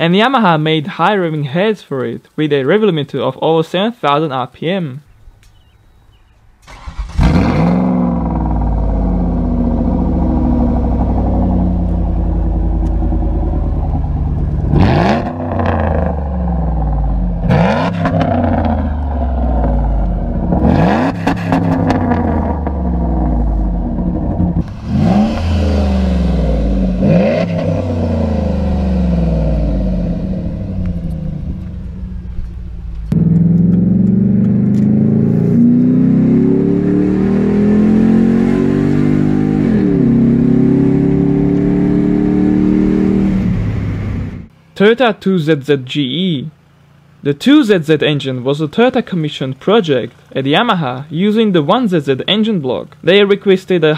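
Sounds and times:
car engine starting and revving: 0:06.6 - 0:44.7.

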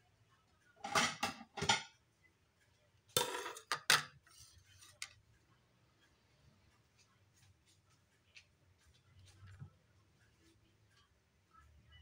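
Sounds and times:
dishes and cutlery clattering: 0:00.8 - 0:02.0, 0:03.2 - 0:05.1.

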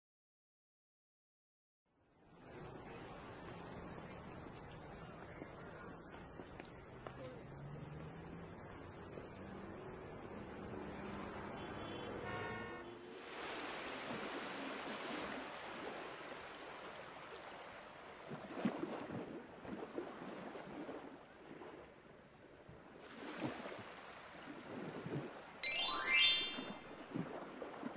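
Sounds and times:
brief pitched tone: 0:25.6 - 0:26.9.

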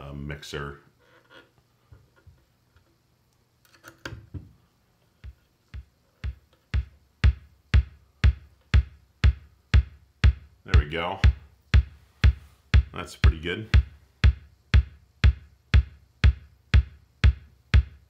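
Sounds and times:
kick drum steady beat: 0:05.2 - 0:18.0.

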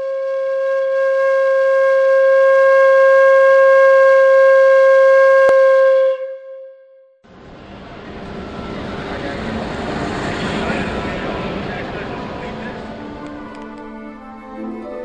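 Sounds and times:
long held musical note: 0:07.8 - 0:15.0.

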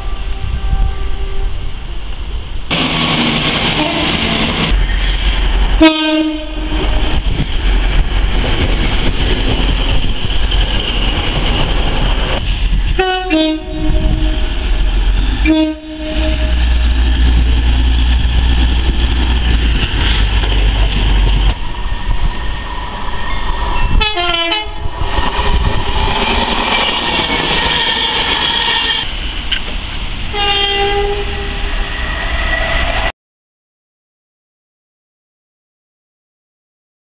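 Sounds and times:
train horn blasts: 0:00.0 - 0:01.7, 0:03.8 - 0:07.4, 0:13.0 - 0:14.5, 0:15.4 - 0:16.8, 0:23.9 - 0:24.9, 0:30.3 - 0:31.8
trains rushing and rumbling past: 0:01.6 - 0:33.1.

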